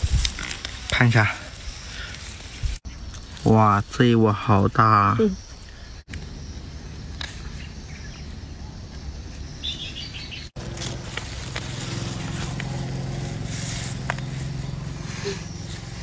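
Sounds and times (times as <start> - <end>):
rustling and snapping in grass: 0.0 - 3.5, 10.6 - 15.0
bird chirping: 5.1 - 10.6.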